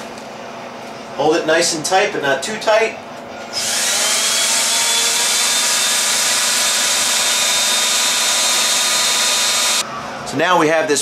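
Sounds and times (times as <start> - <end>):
electric drill motor whine: 3.5 - 9.8.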